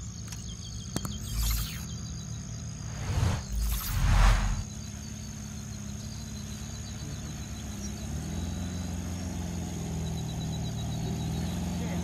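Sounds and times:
car driving through mud and water: 6.6s - 12.0s.

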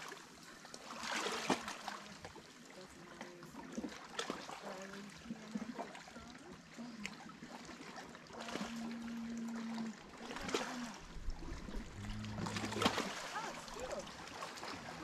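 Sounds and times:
waves lapping on rocks: 0.0s - 15.0s
faint low hum: 8.3s - 15.0s.

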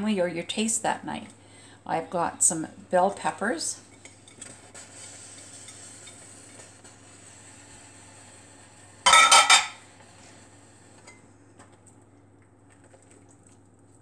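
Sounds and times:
ringing kitchenware clatter: 9.1s - 9.8s.

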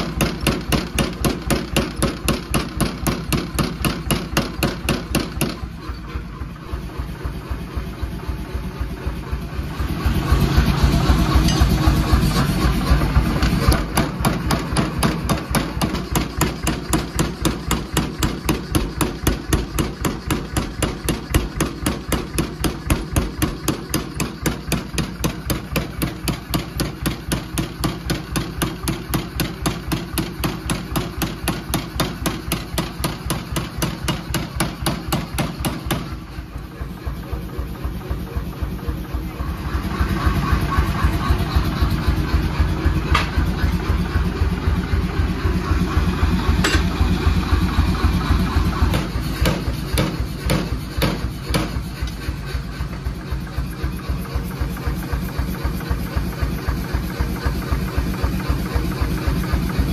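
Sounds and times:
power hammer striking hot steel: 0.0s - 5.8s, 10.0s - 36.4s, 46.4s - 53.6s
hammer motor hum: 0.0s - 59.9s.

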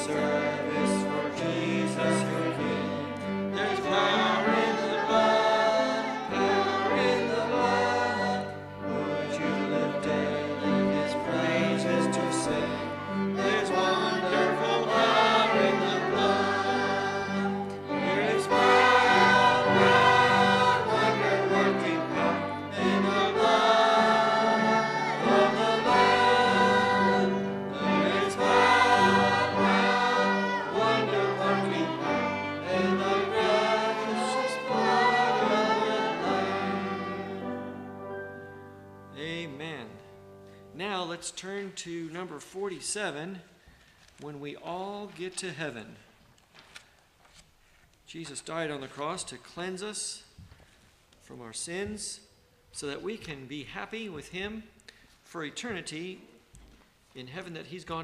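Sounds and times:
group singing a hymn: 0.0s - 38.0s
piano accompaniment: 0.0s - 41.1s.

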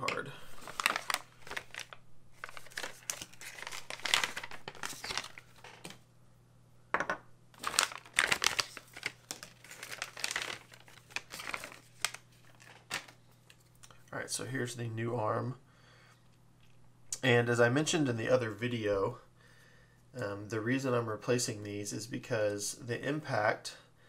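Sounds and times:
plastic packaging crinkling: 0.4s - 6.0s, 7.6s - 13.9s.

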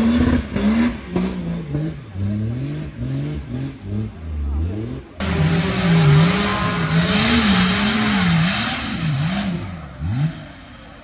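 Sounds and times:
off-road engine revving: 0.0s - 11.0s
loud rushing noise: 5.2s - 10.3s.

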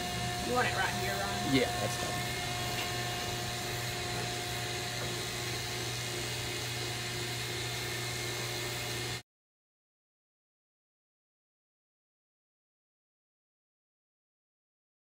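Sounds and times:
electric clippers buzzing: 0.0s - 9.2s.

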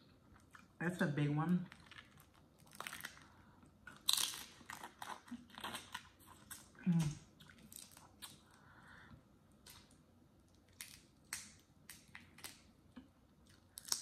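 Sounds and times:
shells cracking and crackling: 13.7s - 14.0s.

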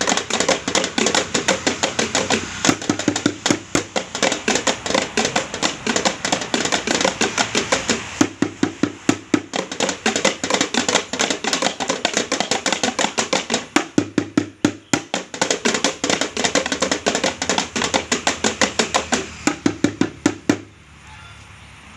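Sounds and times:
drumming on buckets and tins: 0.0s - 20.8s.

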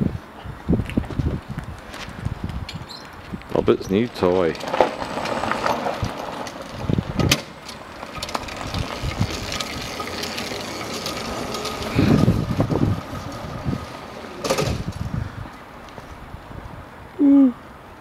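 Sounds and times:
go-kart drive rattling: 2.8s - 16.0s.

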